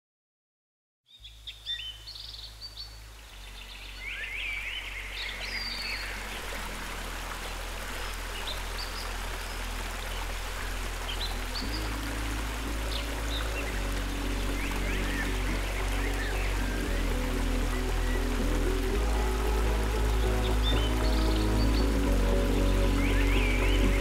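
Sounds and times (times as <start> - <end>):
birds chirping: 1.1 - 24.0
rocky stream rushing: 2.9 - 24.0
low sustained note: 3.4 - 24.0.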